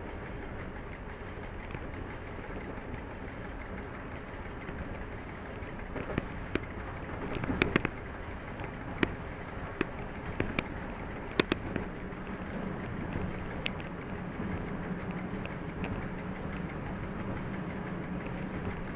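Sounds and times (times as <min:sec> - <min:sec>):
locomotive running rumble: 0:00.0 - 0:18.9
low engine hum: 0:00.0 - 0:18.9
sharp clicks and knocks: 0:05.8 - 0:17.5.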